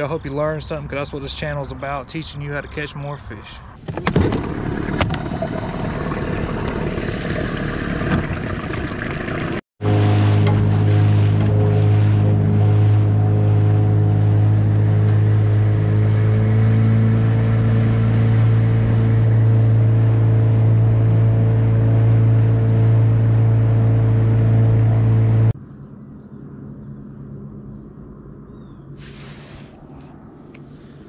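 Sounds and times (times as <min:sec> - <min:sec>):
outboard motor droning: 0:04.0 - 0:31.0
water rushing along hull: 0:04.2 - 0:25.5.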